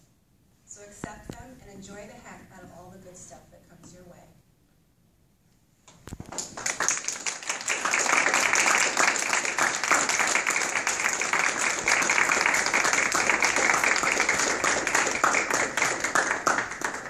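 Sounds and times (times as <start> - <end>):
audience applauding: 6.2 - 17.0.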